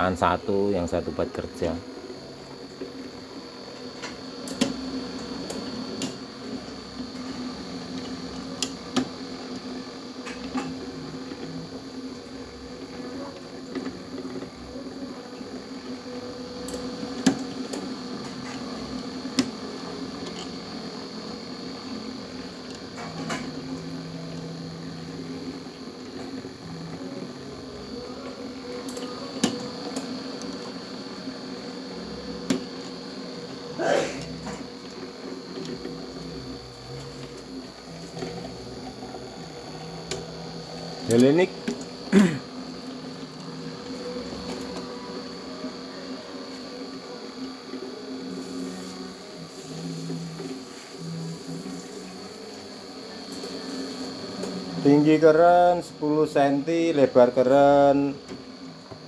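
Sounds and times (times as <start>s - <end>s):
motor hum with high whine: 0.0s - 59.0s.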